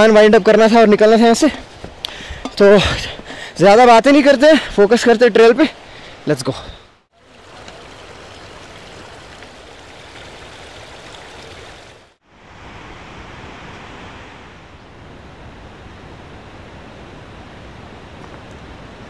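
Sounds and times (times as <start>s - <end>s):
mountain stream rushing: 7.2s - 19.0s.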